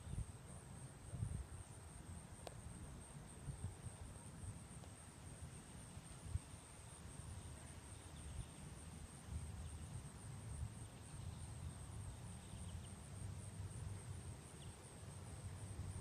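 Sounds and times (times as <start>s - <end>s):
insect chorus: 0.0s - 16.0s
wind rumble on microphone: 1.0s - 11.0s.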